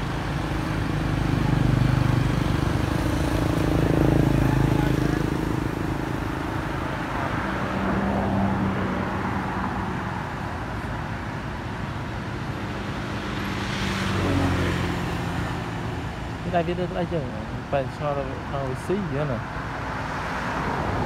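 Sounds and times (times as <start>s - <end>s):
traffic engines passing: 0.0s - 21.0s.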